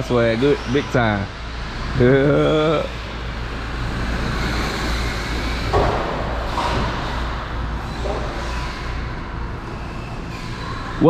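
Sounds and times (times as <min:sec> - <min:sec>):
rc car motors and tyres: 0:00.0 - 0:11.0.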